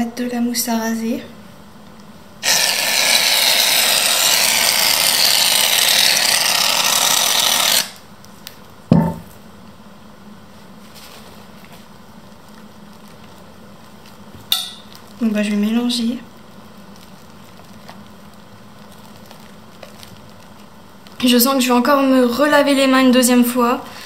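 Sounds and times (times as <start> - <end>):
aerosol can spraying: 2.4 - 8.0.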